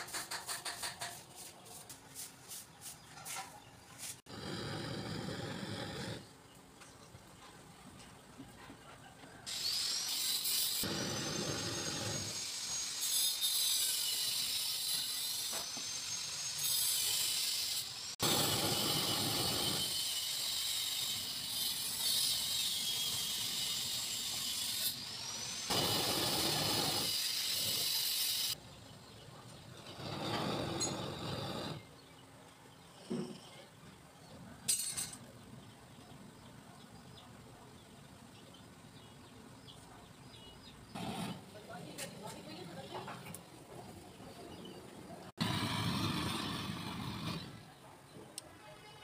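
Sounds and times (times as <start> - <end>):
blowtorch flame hissing: 4.2 - 6.3, 9.5 - 28.6, 29.9 - 32.0, 45.3 - 47.8.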